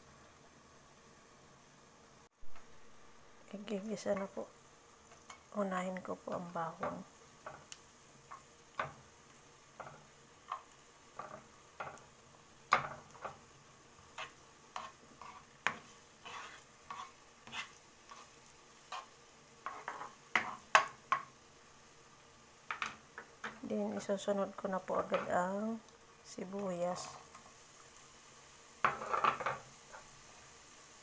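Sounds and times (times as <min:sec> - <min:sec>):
faint oil sizzle: 0:00.0 - 0:31.0
spatula tapping and scraping pan: 0:06.7 - 0:09.1, 0:09.7 - 0:13.5, 0:14.1 - 0:21.3, 0:22.7 - 0:24.1, 0:25.0 - 0:25.3, 0:28.8 - 0:30.1.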